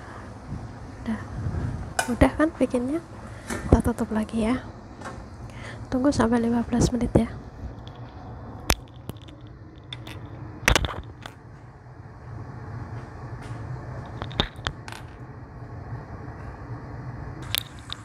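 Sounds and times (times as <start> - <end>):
gas flame rushing: 0.0 - 2.2.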